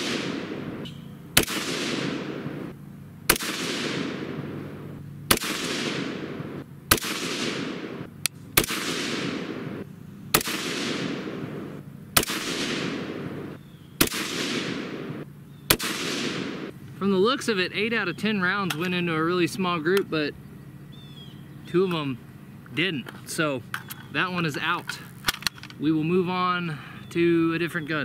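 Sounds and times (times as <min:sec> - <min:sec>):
rifle shots with rolling echo: 0:00.0 - 0:17.3.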